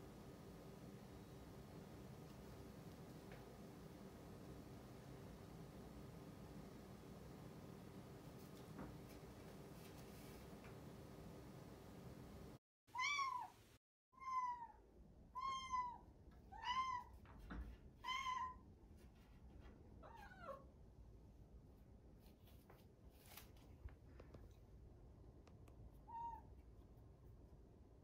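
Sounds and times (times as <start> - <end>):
cat meowing: 12.9 - 13.6, 14.2 - 14.8, 15.4 - 17.2, 18.0 - 18.6.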